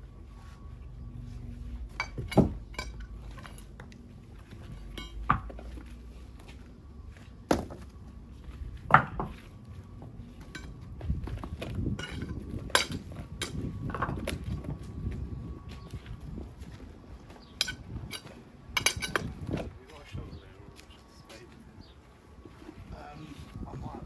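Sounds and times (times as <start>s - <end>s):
hard objects clinking: 1.9s - 3.9s, 11.9s - 14.1s, 17.5s - 19.3s.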